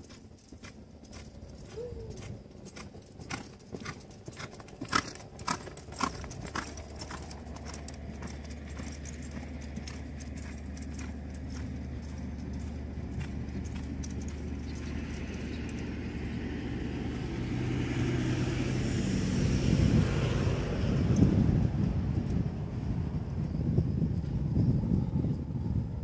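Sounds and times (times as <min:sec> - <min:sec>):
hoofbeats on sand: 0:00.0 - 0:19.0
low rumble: 0:18.8 - 0:26.0.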